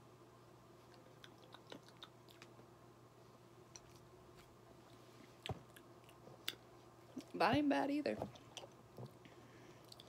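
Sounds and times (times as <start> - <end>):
faint steady hum: 0.0 - 10.0
mouth clicks and swallowing: 1.0 - 2.6.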